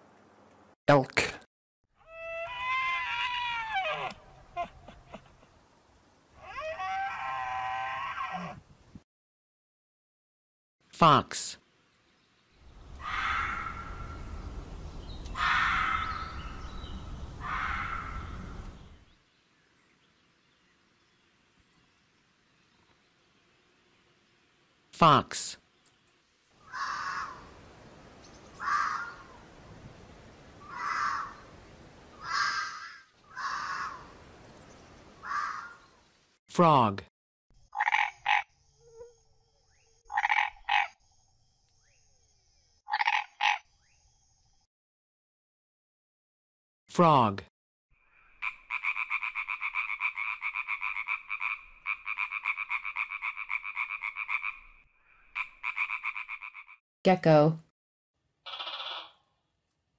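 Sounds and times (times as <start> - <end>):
frog croaking trills: 37.7 - 39.2, 40.1 - 41.0, 42.9 - 43.7, 48.1 - 56.8, 58.5 - 59.2.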